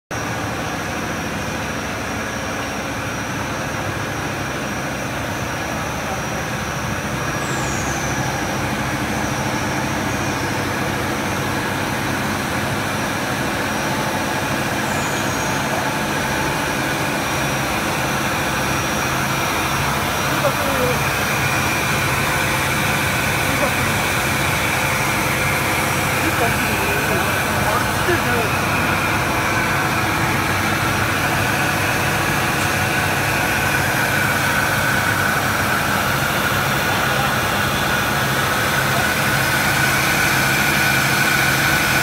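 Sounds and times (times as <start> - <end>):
machine drone with low hum: 0.1 - 42.0
thin steady high tone: 14.6 - 34.8.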